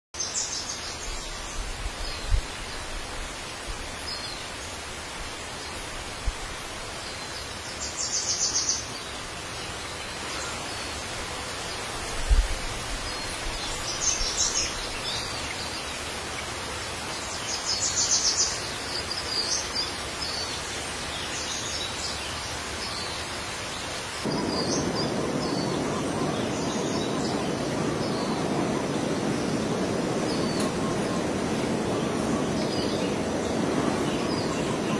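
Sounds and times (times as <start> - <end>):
steady hiss: 0.2 - 34.9
bird chirps and trills: 24.2 - 34.9
low rushing noise: 24.2 - 34.9.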